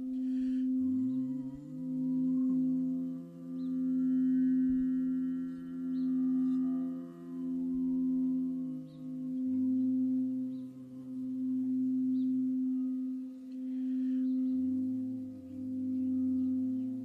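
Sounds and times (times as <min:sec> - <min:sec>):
singing bowl humming: 0:00.0 - 0:17.0.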